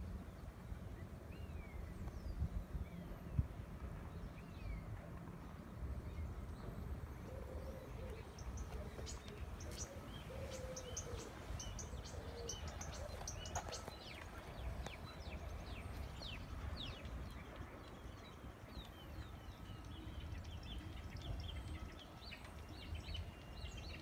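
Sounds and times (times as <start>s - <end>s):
small birds chirping: 6.1s - 24.0s.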